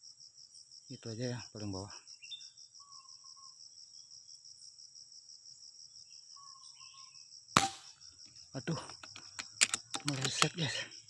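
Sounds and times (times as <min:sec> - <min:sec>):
insects trilling: 0:00.0 - 0:11.0
faint whistled calls: 0:02.2 - 0:03.6
air rifle shot: 0:07.6 - 0:08.0.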